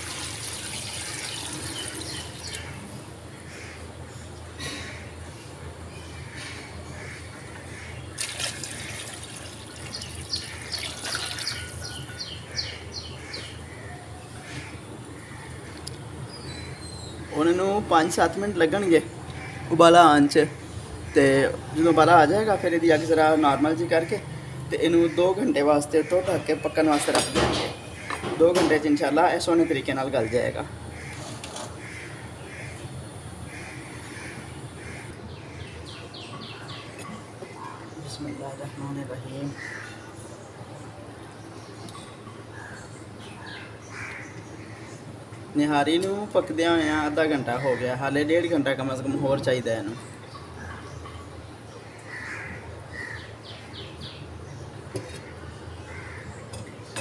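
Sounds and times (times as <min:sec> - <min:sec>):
water pouring into a pot: 0:00.0 - 0:02.4, 0:08.2 - 0:11.8
birds calling: 0:00.0 - 0:57.0.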